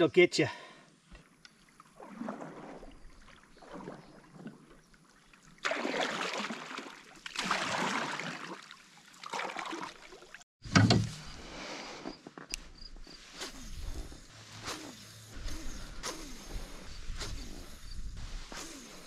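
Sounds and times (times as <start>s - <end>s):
paddle swishing in water: 1.6s - 10.4s.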